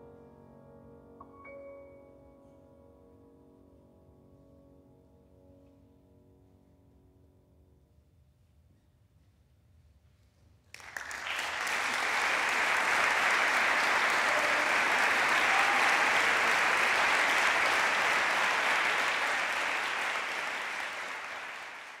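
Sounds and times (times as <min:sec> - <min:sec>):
audience applauding: 0:10.7 - 0:22.0.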